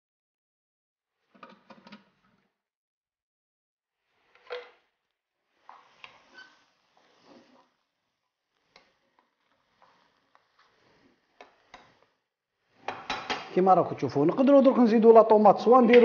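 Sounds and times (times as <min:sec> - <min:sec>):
wooden spatula scraping frying pan: 0:05.5 - 0:07.8, 0:08.5 - 0:12.2.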